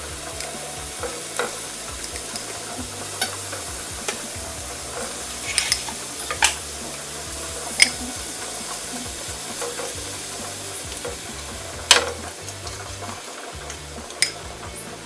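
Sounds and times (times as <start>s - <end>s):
meat sizzling in a frying pan: 0.0s - 15.0s
metal tongs clicking on pan: 4.9s - 6.7s, 7.6s - 8.8s, 11.9s - 14.4s.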